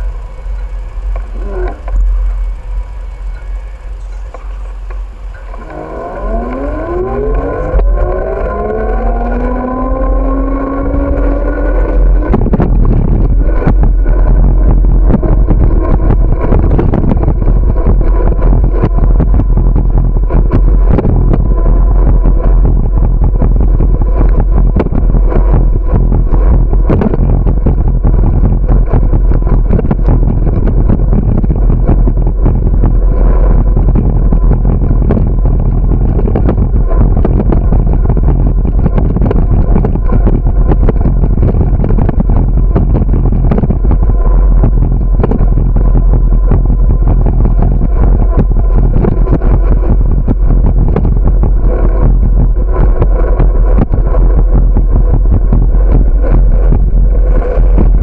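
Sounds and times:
car traffic: 0:00.0 - 0:19.6
wind noise on microphone: 0:00.0 - 0:58.0
bicycle rattling over bumps: 0:10.8 - 0:58.0.

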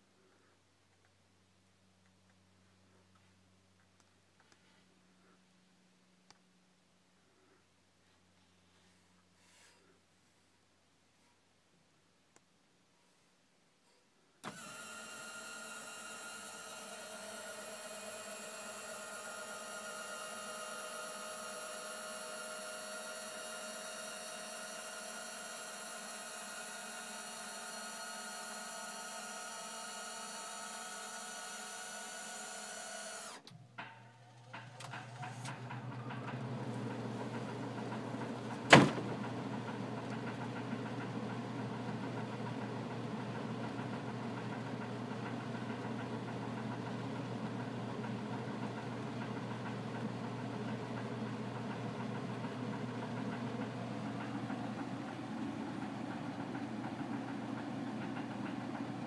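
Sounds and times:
fan humming with rushing air: 0:14.4 - 0:33.6, 0:34.2 - 0:59.0
linear actuators whirring: 0:14.4 - 0:59.0.

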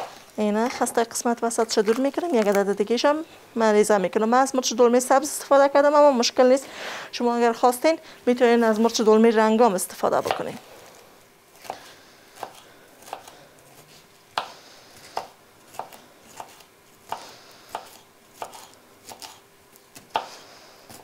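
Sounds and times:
knife slicing on wooden board: 0:12.4 - 0:19.4.

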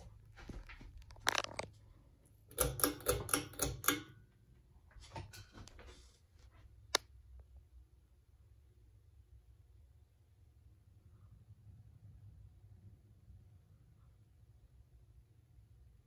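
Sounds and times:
sharp clicks and knocks: 0:00.0 - 0:01.7, 0:02.5 - 0:04.3.

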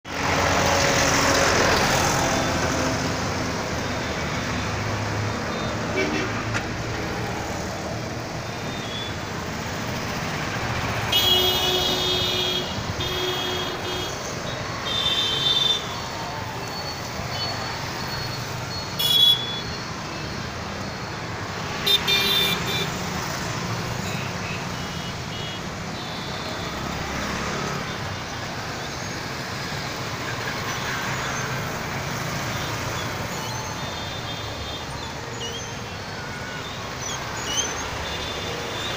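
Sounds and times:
road traffic noise: 0:00.0 - 0:38.9
vehicle horns tooting: 0:05.5 - 0:06.6, 0:11.0 - 0:16.0, 0:16.6 - 0:20.2, 0:21.8 - 0:23.0, 0:24.0 - 0:27.0, 0:32.5 - 0:38.9.

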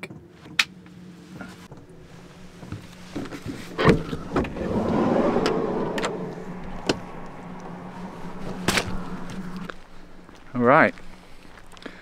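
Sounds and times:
steady low hum: 0:00.8 - 0:12.0
sliding door rolling open: 0:01.7 - 0:09.7.

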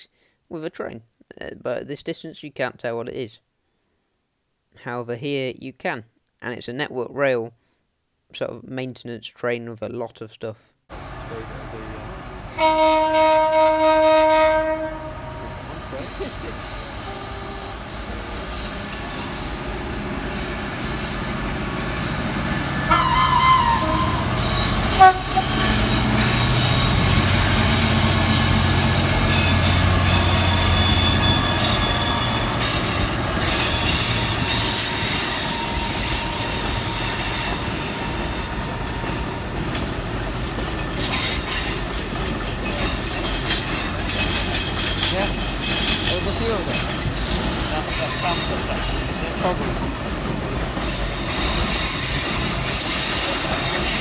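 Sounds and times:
diesel locomotive engine rumble: 0:10.9 - 0:54.0
train horn: 0:12.5 - 0:15.9, 0:17.0 - 0:17.9, 0:22.8 - 0:32.6
train wheels squealing and clicking: 0:15.6 - 0:22.3, 0:23.0 - 0:39.9, 0:40.6 - 0:54.0.

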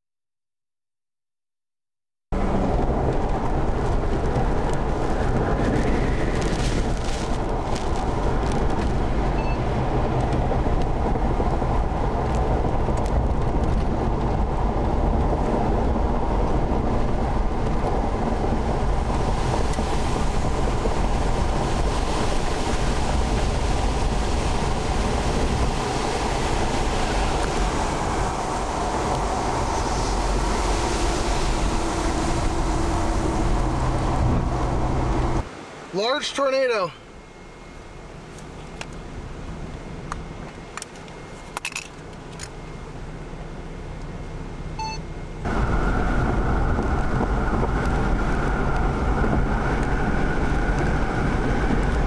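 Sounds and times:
deep wind rumble: 0:02.3 - 0:35.9, 0:37.1 - 0:52.0
rain and wind hiss: 0:02.4 - 0:37.2.

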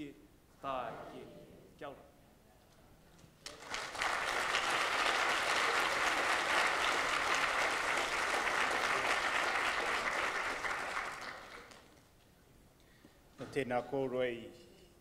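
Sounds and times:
audience applauding: 0:03.5 - 0:11.9.

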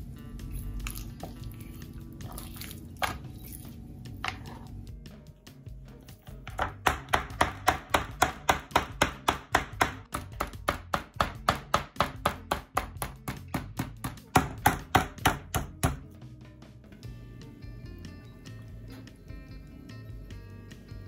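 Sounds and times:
meat mallet pounding on cutting board: 0:06.5 - 0:16.1.

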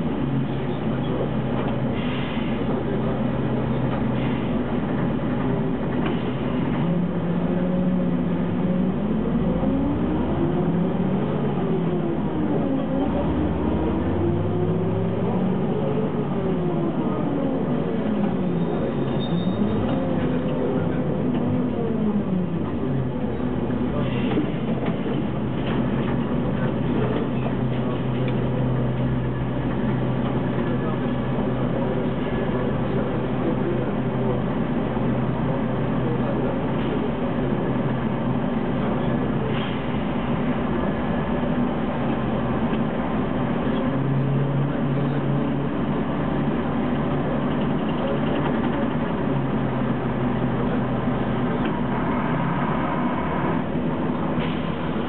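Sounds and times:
bus diesel engine droning: 0:00.0 - 0:55.0.

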